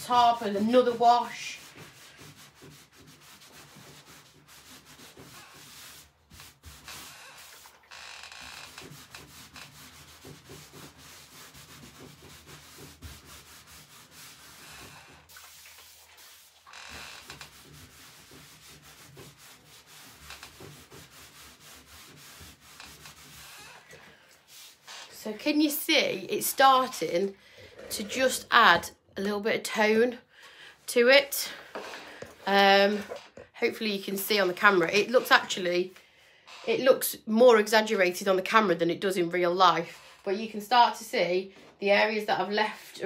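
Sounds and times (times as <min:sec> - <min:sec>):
cloth rubbing on wood panel: 0:00.0 - 0:25.8.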